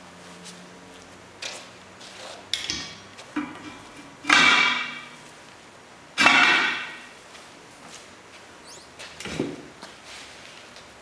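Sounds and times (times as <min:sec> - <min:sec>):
metal bar clanking on wheel rims: 0:02.6 - 0:05.2, 0:06.2 - 0:07.1.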